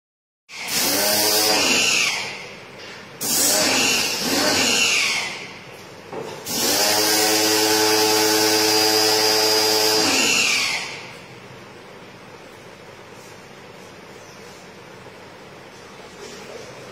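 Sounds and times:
pressure washer motor whine: 6.5 - 11.2.

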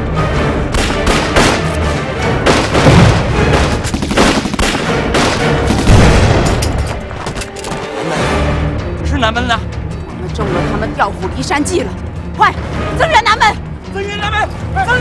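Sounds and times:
dramatic film score music: 0.0 - 15.0
gunfire: 0.7 - 1.8, 2.4 - 7.0
explosions: 2.4 - 6.6.

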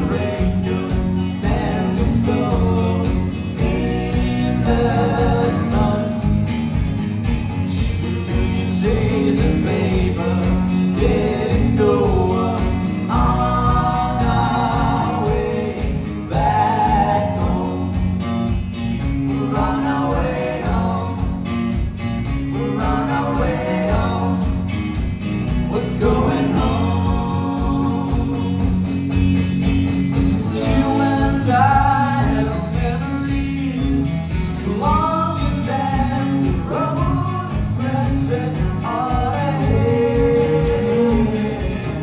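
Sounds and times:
person singing: 0.0 - 6.6, 7.7 - 18.1, 25.7 - 28.9, 30.3 - 42.0
bass guitar: 0.0 - 42.0
drums: 0.0 - 42.0
electric guitars: 0.0 - 42.0.

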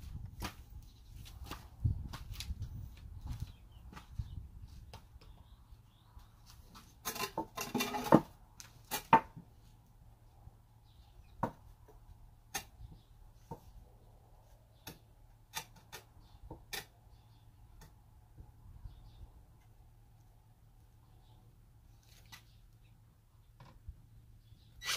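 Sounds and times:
wooden boards knocking on concrete: 7.1 - 8.3, 9.0 - 9.4, 11.4 - 11.6.

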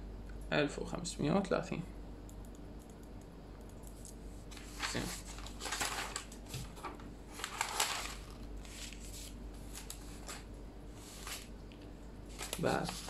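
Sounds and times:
paper rustling: 4.5 - 11.5, 12.3 - 13.0.

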